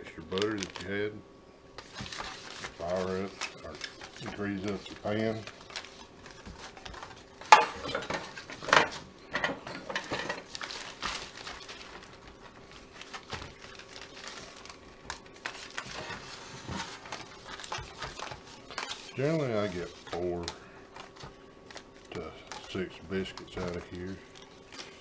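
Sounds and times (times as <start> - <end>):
paper rubbing inside metal pan: 1.8 - 7.3, 15.4 - 20.5.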